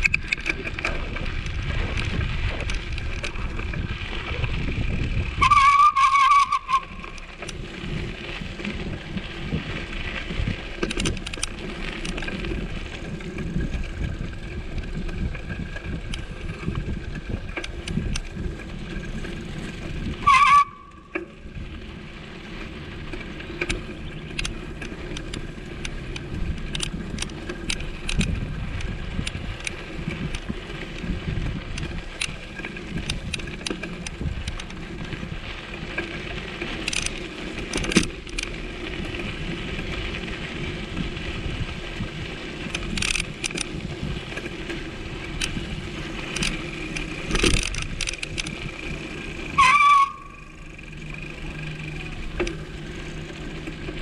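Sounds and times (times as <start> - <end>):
vehicle road noise: 0.0 - 54.0
loud squealing tone: 5.4 - 7.1, 20.2 - 21.0, 49.5 - 50.6.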